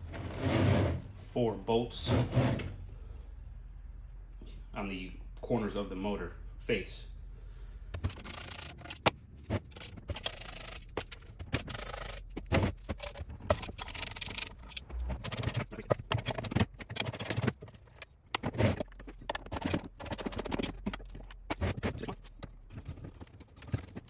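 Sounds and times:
sharp clicks and knocks: 7.9s - 24.0s
hand tool scraping metal bolts: 8.0s - 22.5s.

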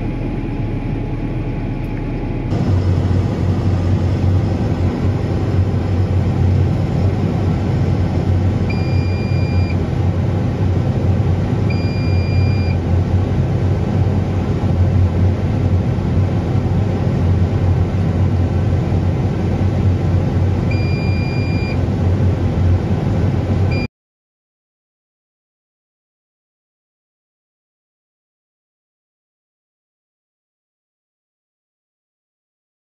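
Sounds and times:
tractor diesel engine running: 0.0s - 23.9s
electronic beep: 8.7s - 9.8s, 11.7s - 12.8s, 20.7s - 21.8s.

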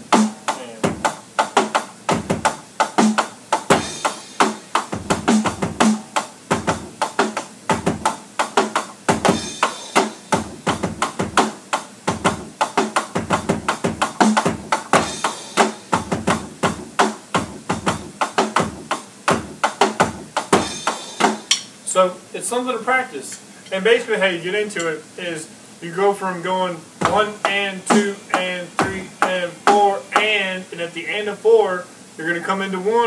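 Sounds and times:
electronic drum kit rock groove: 0.0s - 21.9s, 26.9s - 30.6s.

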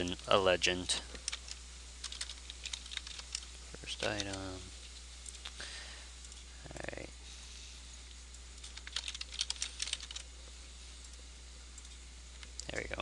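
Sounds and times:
keyboard typing: 1.1s - 4.5s, 8.6s - 10.3s.

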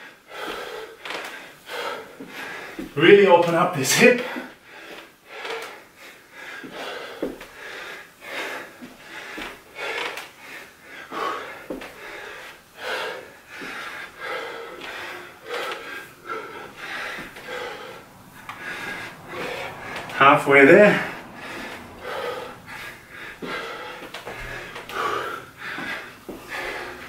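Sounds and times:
man breathing hard: 0.0s - 3.0s, 4.0s - 27.0s
footsteps on carpet: 11.6s - 12.6s, 14.8s - 20.2s, 21.4s - 27.0s.

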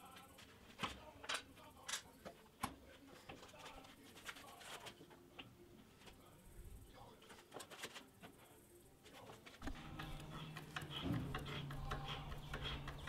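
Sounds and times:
faint clicks and taps: 9.2s - 13.0s.

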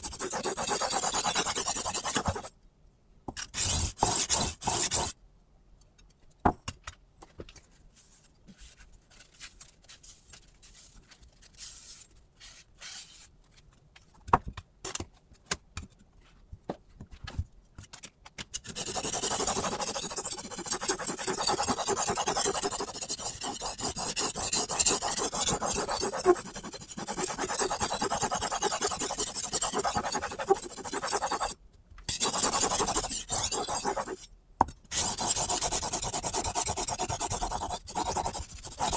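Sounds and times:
knife scraping on sharpening stone: 28.6s - 34.3s.

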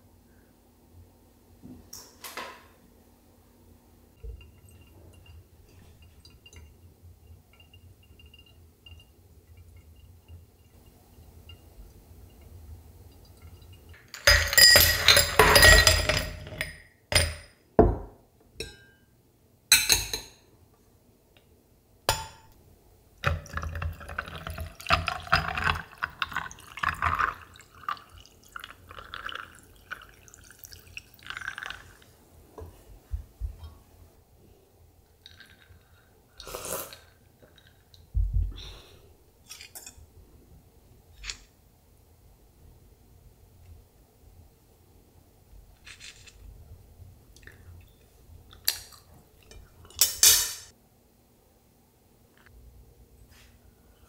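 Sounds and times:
ice cubes clinking in glass: 14.0s - 17.4s
coffee pouring over ice: 23.2s - 32.1s, 35.2s - 36.0s.

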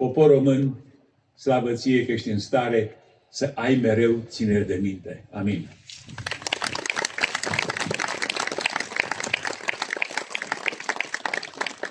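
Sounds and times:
audience applauding: 6.0s - 11.9s.

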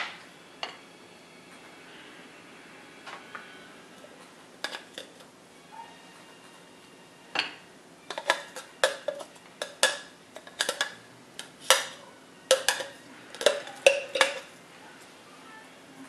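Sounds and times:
utensil scraping glass blender jar: 4.6s - 5.2s, 8.1s - 14.5s.

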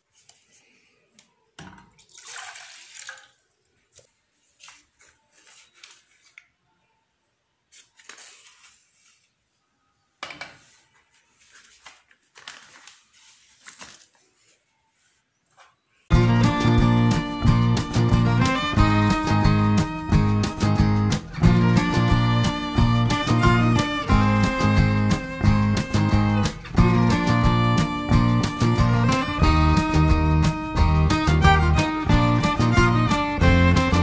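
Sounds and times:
spoon scraping paper packet: 4.6s - 6.4s.

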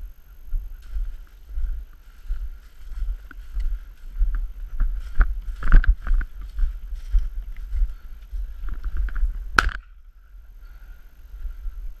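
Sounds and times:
footsteps in dry grass: 0.0s - 12.0s
wind rumbling on microphone: 0.0s - 12.0s.

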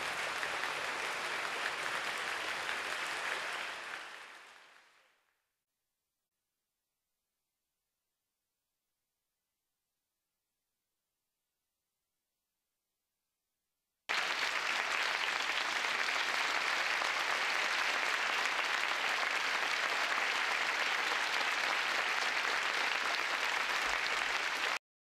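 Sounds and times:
audience applauding: 0.0s - 5.2s, 14.1s - 24.8s.

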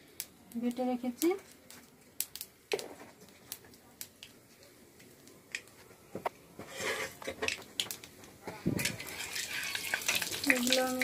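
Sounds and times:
hot oil sizzling in a pan: 8.8s - 11.0s.

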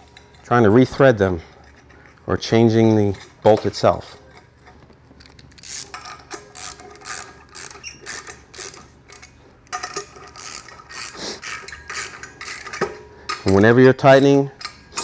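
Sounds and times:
hand ratchet clicking: 5.2s - 15.0s.

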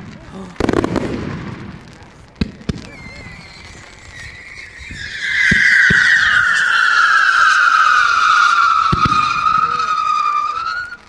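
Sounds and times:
low firework thumps: 0.0s - 6.6s, 8.7s - 10.0s
firework bangs: 0.0s - 11.0s
whistling firework: 0.0s - 11.0s.

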